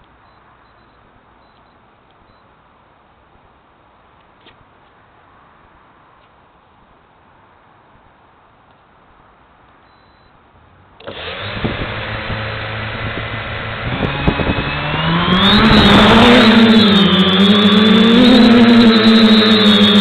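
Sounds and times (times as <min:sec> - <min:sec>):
drone motors whining: 0:11.0 - 0:20.0.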